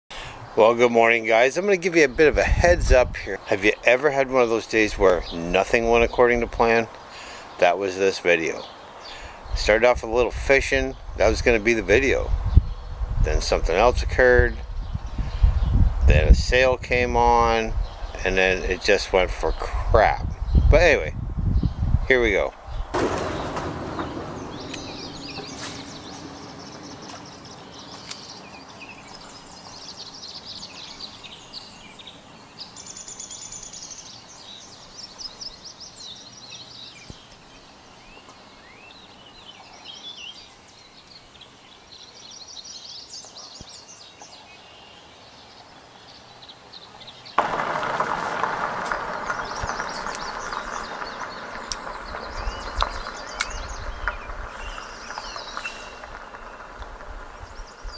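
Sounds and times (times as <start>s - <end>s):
songbirds chirping and trilling: 0.1s - 57.9s
loud steady buzzing: 47.4s - 53.7s.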